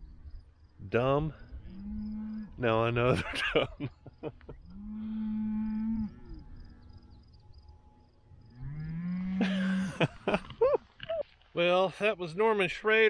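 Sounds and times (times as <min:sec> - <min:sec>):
cows mooing: 0:01.6 - 0:02.8, 0:04.6 - 0:07.2, 0:07.8 - 0:10.1.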